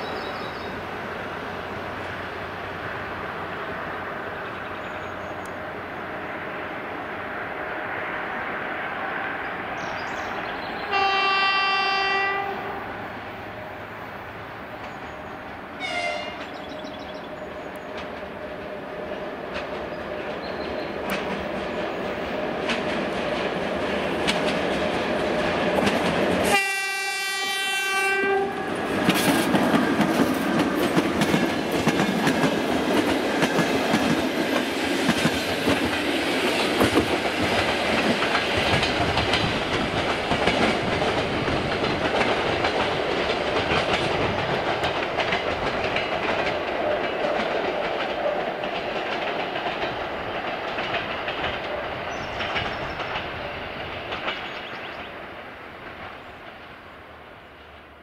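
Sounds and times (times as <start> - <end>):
train horn blast: 10.9 - 12.9, 15.8 - 16.4, 26.4 - 28.7
train wheels clattering over rails: 14.6 - 56.8.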